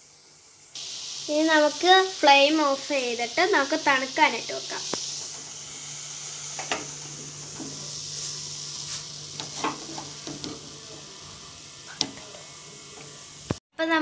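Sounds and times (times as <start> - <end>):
beetroot sizzling in a pan: 0.0 - 13.6
spoon scraping a pan: 6.5 - 10.7.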